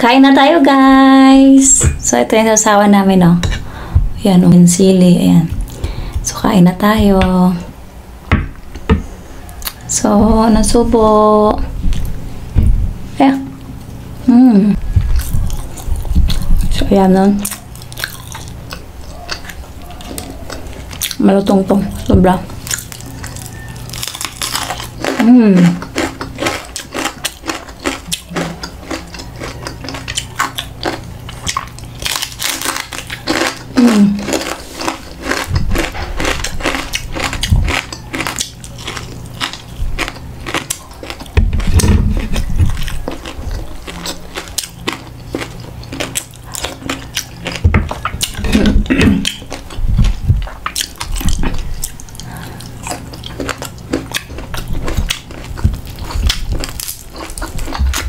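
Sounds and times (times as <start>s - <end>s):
crunching and chewing fried food: 5.2s - 6.9s, 9.4s - 10.8s, 14.8s - 58.0s.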